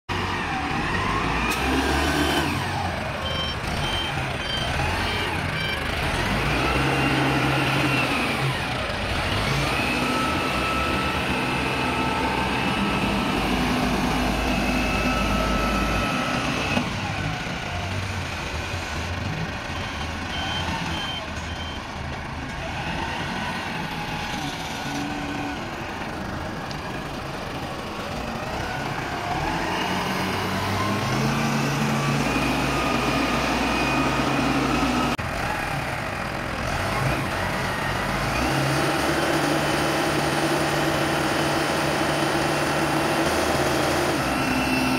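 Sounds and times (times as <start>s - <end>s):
truck engine revving: 0.1s - 44.9s
short beeps: 3.2s - 5.8s, 19.8s - 21.9s.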